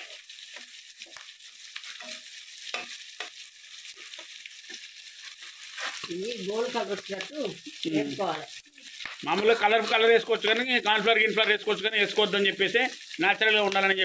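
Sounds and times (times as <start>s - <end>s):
metal spatula scraping pan: 0.0s - 6.2s
deep-frying sizzle in oil: 0.0s - 14.0s.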